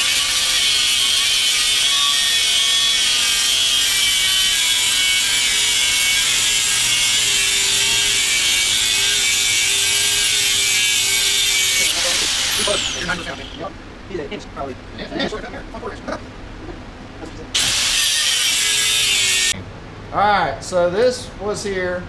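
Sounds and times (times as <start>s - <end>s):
power tool hissing and whining: 0.0s - 13.7s, 17.6s - 19.6s.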